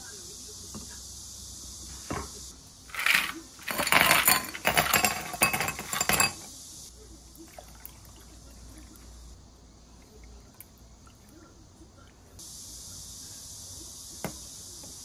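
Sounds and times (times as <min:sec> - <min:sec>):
ice rattling in scoop: 0:02.9 - 0:06.4
ice cubes clinking against glass: 0:02.9 - 0:06.5.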